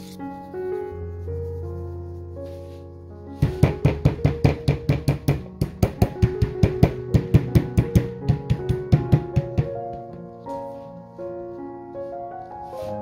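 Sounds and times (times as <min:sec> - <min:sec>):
light background music: 0:00.0 - 0:13.0
meat mallet thumping: 0:03.4 - 0:10.3.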